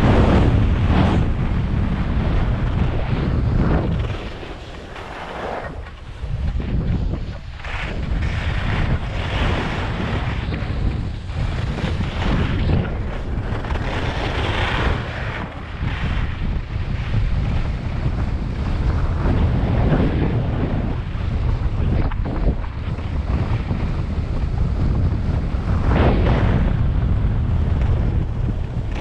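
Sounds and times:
wind buffeting microphone: 0.0s - 29.0s
skis hissing over snow: 3.4s - 12.3s.

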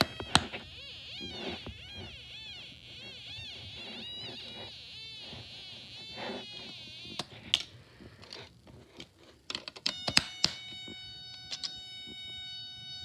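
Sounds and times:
plastic parts clicking: 7.1s - 12.2s.

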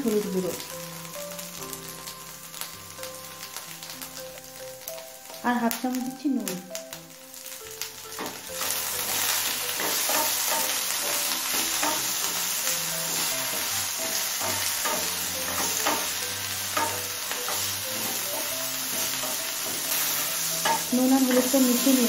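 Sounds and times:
vegetables sizzling in oil: 0.0s - 22.0s
spatula scraping pan: 8.2s - 22.0s.

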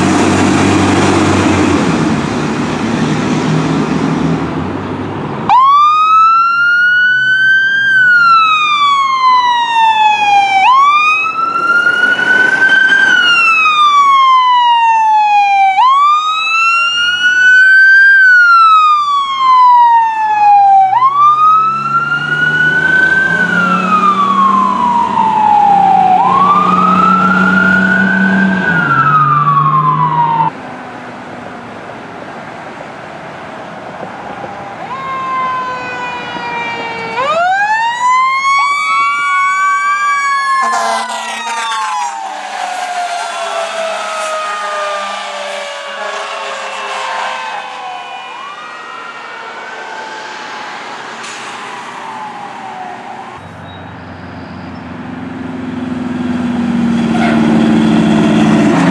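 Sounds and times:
fire truck siren wailing: 0.0s - 4.5s, 5.4s - 30.6s, 33.8s - 58.9s
heavy vehicle engine: 0.0s - 5.6s, 8.7s - 14.6s, 40.6s - 58.9s
road noise: 0.0s - 58.9s.

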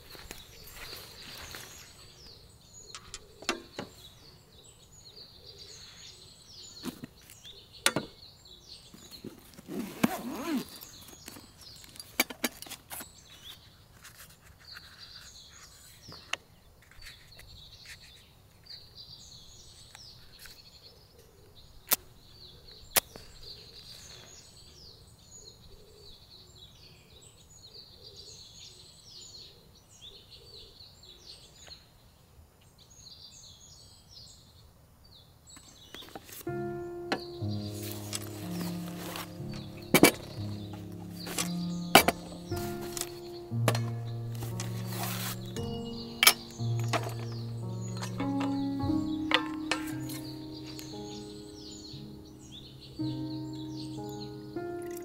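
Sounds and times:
birds chirping: 0.0s - 14.0s, 35.5s - 55.0s
sharp clicks and knocks: 39.4s - 50.3s.

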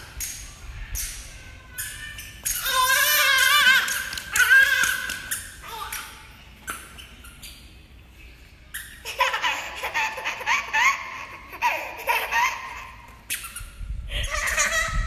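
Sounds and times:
toddler laughing: 9.0s - 13.2s, 14.1s - 15.0s.

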